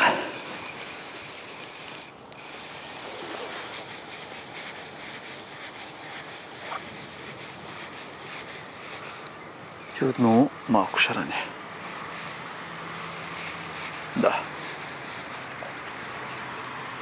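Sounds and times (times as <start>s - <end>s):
quick light clicks: 0.5s - 2.6s, 16.5s - 16.8s
outdoor rushing noise: 2.4s - 17.0s.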